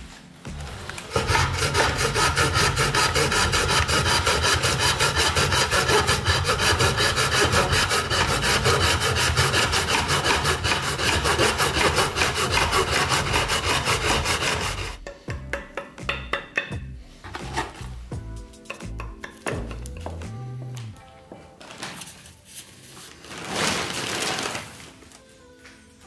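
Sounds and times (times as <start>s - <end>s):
back saw sawing strokes: 1.0s - 15.1s.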